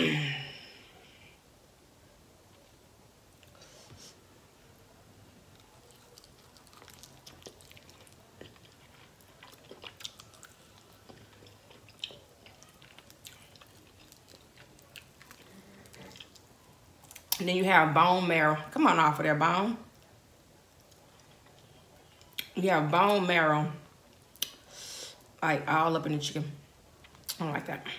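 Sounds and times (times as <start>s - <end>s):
chewing and crunching: 5.4s - 17.4s, 19.9s - 22.6s.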